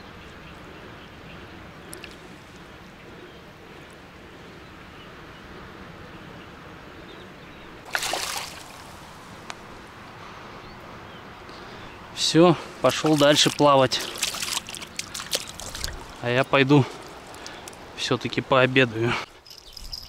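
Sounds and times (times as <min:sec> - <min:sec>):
low sound of moving water: 0:00.0 - 0:18.7
fish splashing in water: 0:07.9 - 0:09.0, 0:12.9 - 0:16.2.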